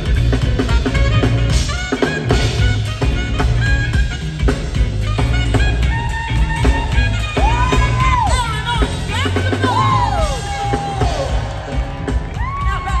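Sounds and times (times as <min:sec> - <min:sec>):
alto saxophone bending high notes: 0:00.0 - 0:13.0
live band music: 0:00.0 - 0:13.0.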